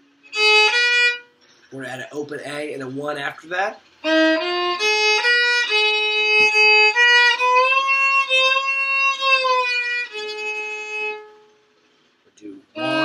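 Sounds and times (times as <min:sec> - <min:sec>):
fiddle bowed slowly: 0:00.0 - 0:01.3, 0:04.0 - 0:11.6, 0:12.5 - 0:13.0.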